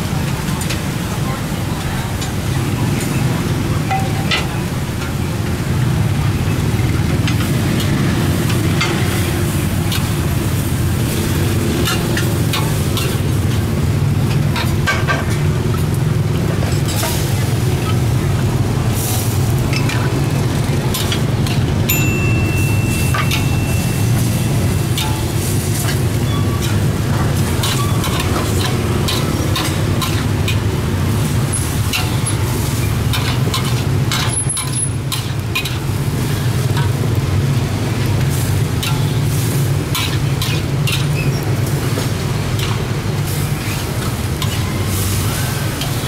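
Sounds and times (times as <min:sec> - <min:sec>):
vegetables sizzling: 0:04.2 - 0:46.0
ladle scraping metal wok: 0:20.9 - 0:37.2, 0:38.2 - 0:46.0.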